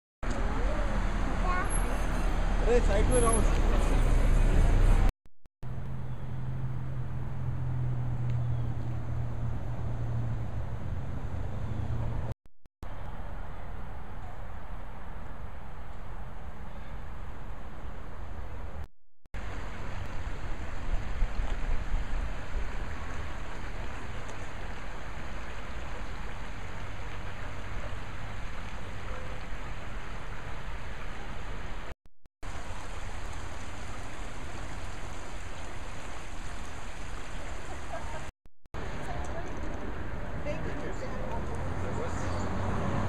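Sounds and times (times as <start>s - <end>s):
stream rushing: 19.4s - 39.1s.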